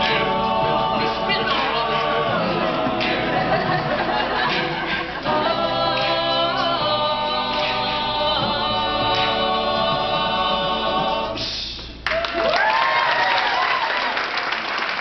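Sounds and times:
male a cappella group singing: 0:00.0 - 0:11.8.

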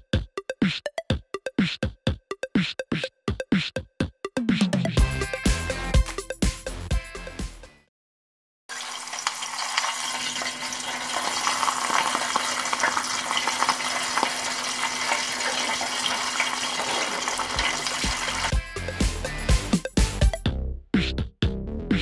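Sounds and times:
deep-frying sizzling and crackling: 0:08.7 - 0:18.5.

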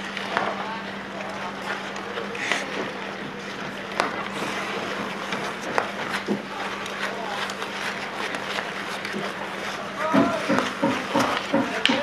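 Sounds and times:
steady low hum: 0:00.0 - 0:12.0
skates scraping on ice: 0:03.4 - 0:12.0
distant players shouting: 0:09.8 - 0:11.2
sticks hitting ball: 0:10.0 - 0:12.0.

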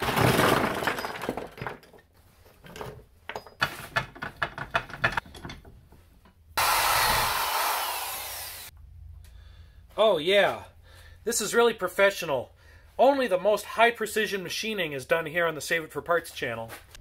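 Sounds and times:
bench vise clicking and knocking: 0:03.3 - 0:06.4
electric drill whirring: 0:06.6 - 0:08.7.

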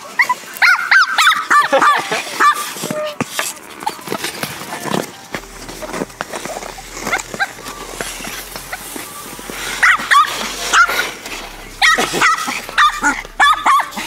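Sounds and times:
puppy barking and yipping: 0:00.2 - 0:02.7, 0:09.8 - 0:11.1, 0:11.8 - 0:14.0.

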